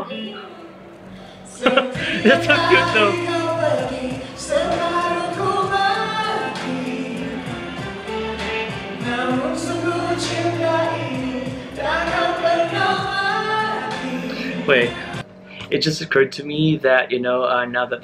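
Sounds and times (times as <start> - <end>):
man and woman singing duet: 1.4 - 15.2
bass notes: 2.0 - 15.2.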